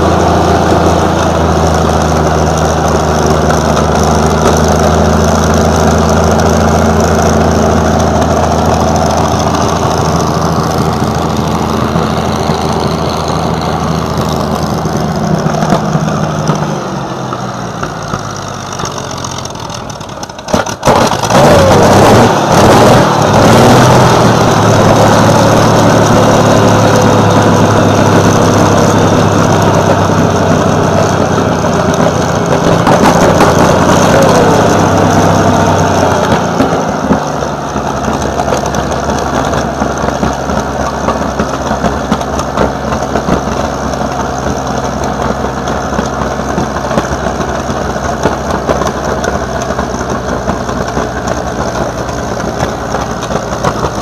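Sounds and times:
tank engine idling: 0.0s - 54.0s.

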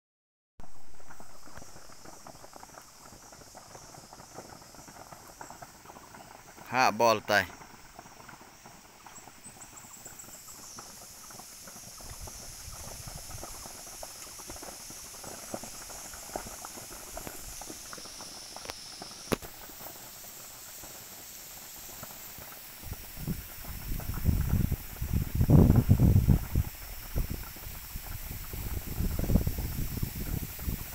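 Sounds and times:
fire crackling and popping: 0.6s - 30.9s
steady high hiss: 0.6s - 30.9s
low gusting rumble: 23.0s - 30.9s.

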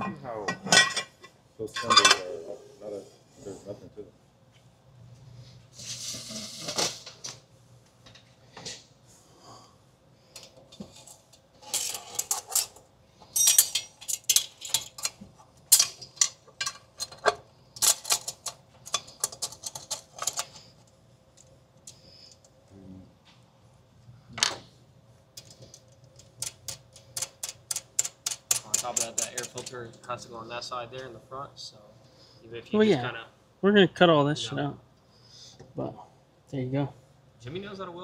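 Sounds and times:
hand tools clinking on metal: 13.3s - 16.8s.

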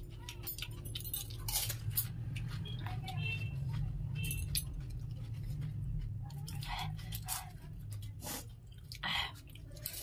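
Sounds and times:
crisp shells crunching when chewed: 0.0s - 3.1s.

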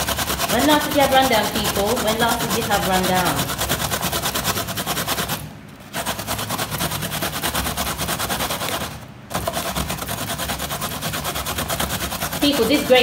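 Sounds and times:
coconut scraping on metal grater: 0.0s - 13.0s.

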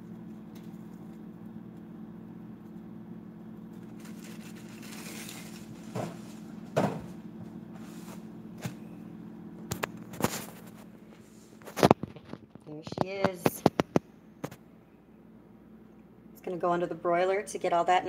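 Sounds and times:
steady low hum: 0.0s - 18.0s
plastic bag rustling: 3.7s - 6.8s
knocks and thumps: 5.9s - 7.2s.

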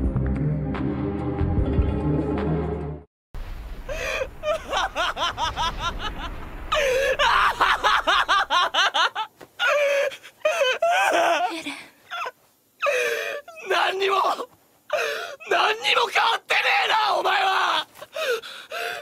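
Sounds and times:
low rumble: 3.4s - 8.7s
man laughing hysterically: 3.9s - 11.6s.

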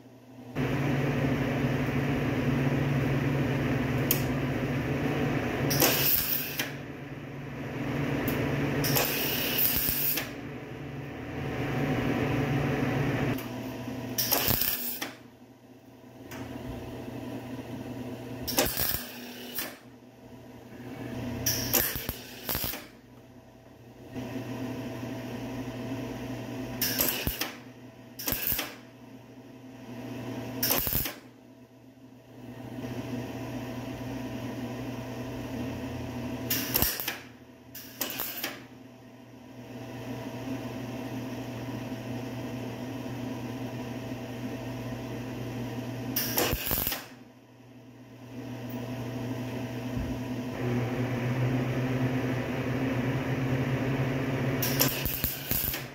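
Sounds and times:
welder bursts: 5.7s - 6.8s, 8.3s - 10.4s, 14.2s - 15.2s, 18.4s - 19.9s, 21.4s - 23.0s, 26.8s - 27.6s, 28.2s - 28.8s, 30.6s - 31.3s, 36.5s - 38.7s, 46.1s - 47.2s, 54.6s - 55.9s
steady low hum: 10.3s - 14.2s.

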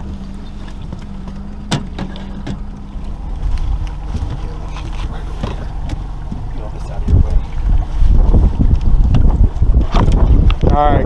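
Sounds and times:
boat motor humming: 0.0s - 11.0s
low rumble of boat on water: 0.0s - 11.0s
sharp knocks: 1.6s - 2.7s.

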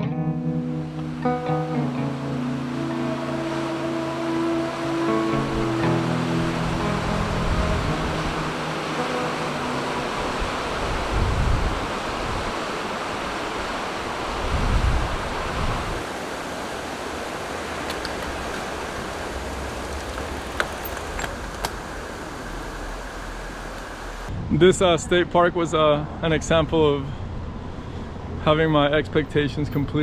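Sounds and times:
lake surf rushing: 0.6s - 26.6s
wind buffeting microphone: 9.9s - 28.3s.

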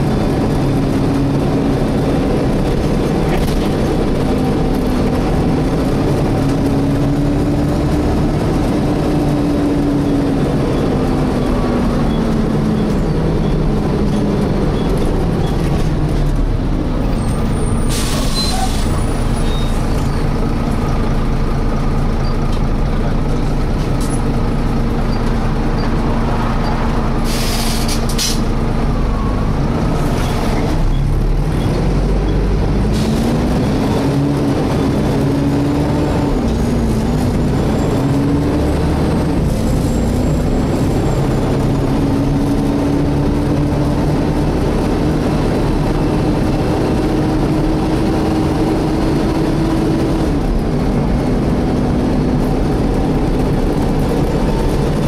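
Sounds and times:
bus engine running: 0.0s - 55.0s
short air hisses: 27.2s - 28.4s
bus cooling fan whining: 32.5s - 55.0s.

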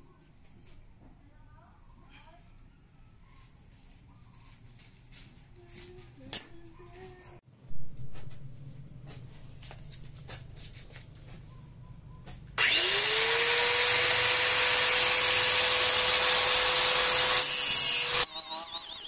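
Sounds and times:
angle grinder motor whine: 12.6s - 19.0s
grinder disc cutting steel: 12.6s - 19.0s.

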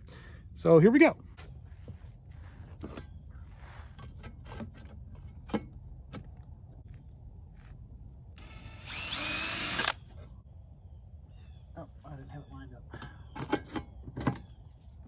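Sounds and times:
drill running into steel: 8.4s - 10.1s.

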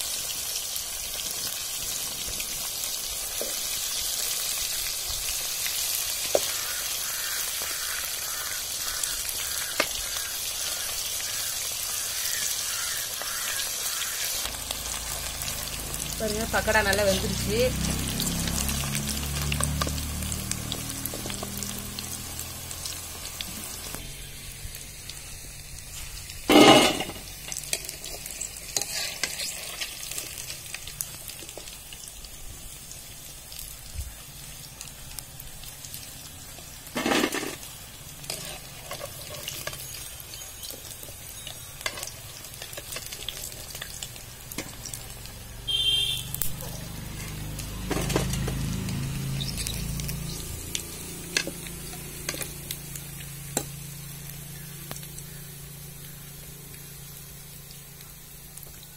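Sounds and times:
oil sizzling: 0.0s - 58.9s.

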